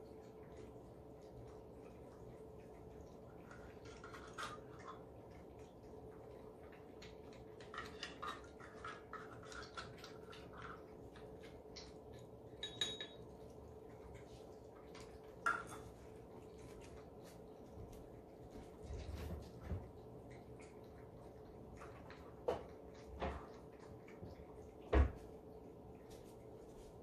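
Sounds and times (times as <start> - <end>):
cats chewing and licking: 0.0 - 27.0
faint steady hum: 0.0 - 27.0
clinks against ceramic bowls: 12.6 - 13.3.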